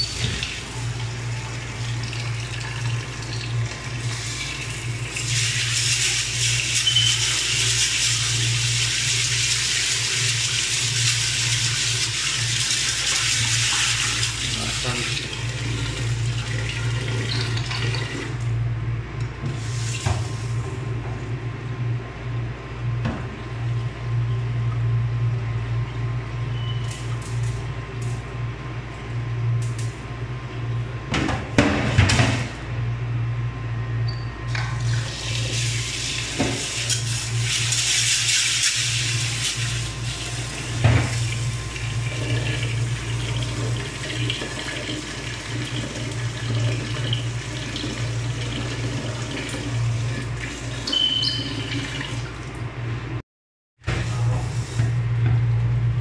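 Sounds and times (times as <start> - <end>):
tap water running into pot: 1.6 - 18.4.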